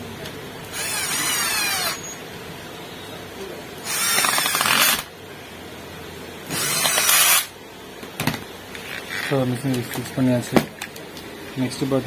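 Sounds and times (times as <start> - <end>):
cordless drill bursts: 0.7 - 2.1, 3.8 - 5.1, 6.5 - 7.5.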